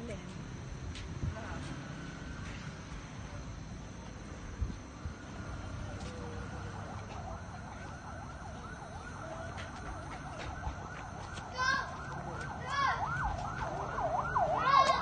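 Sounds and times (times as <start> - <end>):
siren warbling: 5.0 - 15.0.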